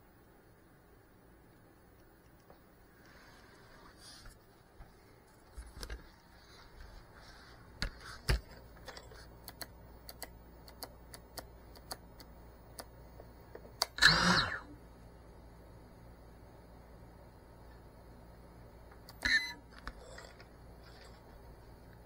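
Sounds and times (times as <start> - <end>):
evenly spaced ticks: 1.4 - 3.2, 9.2 - 13.0.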